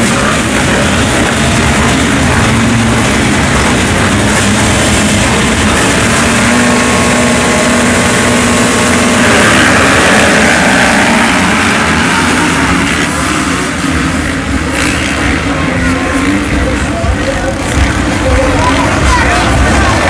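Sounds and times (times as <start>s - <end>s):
motocross bike engines revving: 0.0s - 20.0s.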